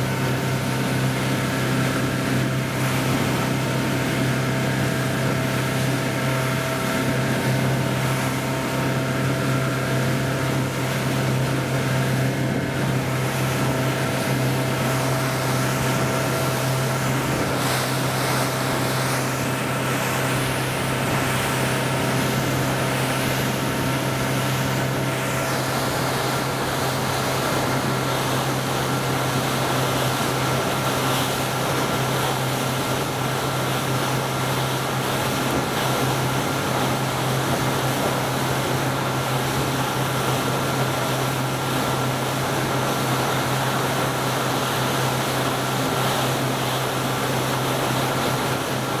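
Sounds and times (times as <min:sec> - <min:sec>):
low machine hum: 0:00.0 - 0:49.0.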